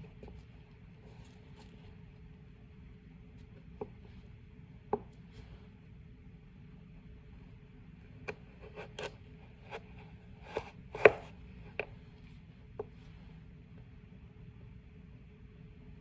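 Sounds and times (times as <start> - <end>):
knife chopping carrot on board: 8.2 - 11.9.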